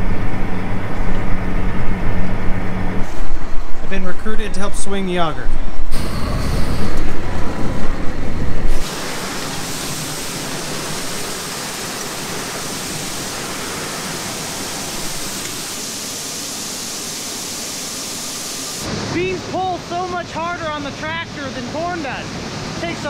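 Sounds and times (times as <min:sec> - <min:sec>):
gusty low rumble: 0:00.0 - 0:08.9.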